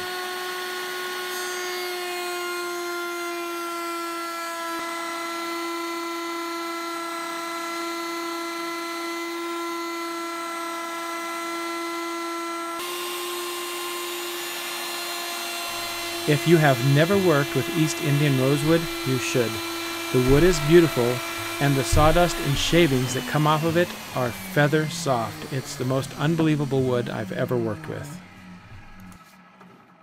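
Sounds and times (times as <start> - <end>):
router motor whine: 0.0 - 29.4
hiss of wood cutting: 12.8 - 29.1.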